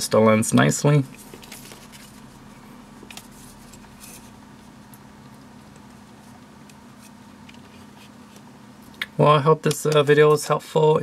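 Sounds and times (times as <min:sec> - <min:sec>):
steady low hum: 0:00.0 - 0:11.0
handling rustles: 0:01.1 - 0:02.4.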